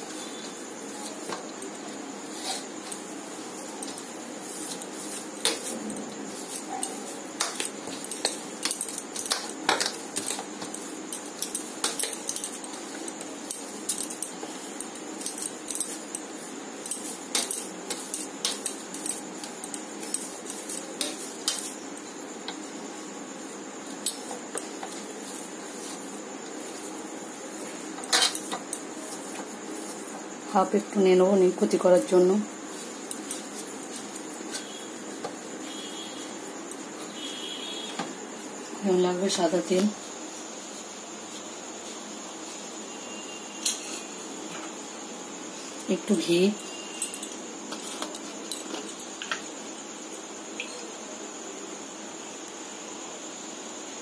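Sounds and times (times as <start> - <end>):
faint steady hiss: 0.0 - 54.0
bangles clinking: 46.5 - 49.4.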